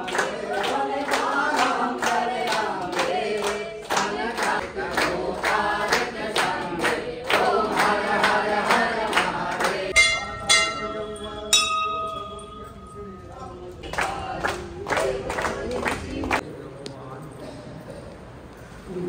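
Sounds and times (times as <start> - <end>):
group singing a chant: 0.0 - 11.6, 13.6 - 16.4
steady sharp beat: 9.9 - 12.8
metal bell ringing: 9.9 - 13.8.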